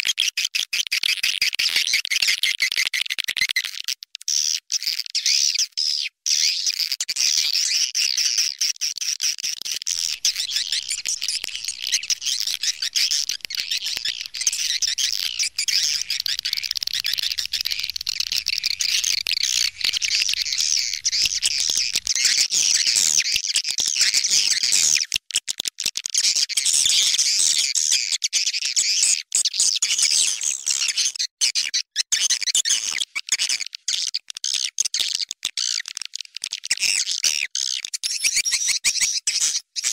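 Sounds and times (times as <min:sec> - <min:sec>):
swiftlet twittering chirps: 0:09.9 - 0:23.0.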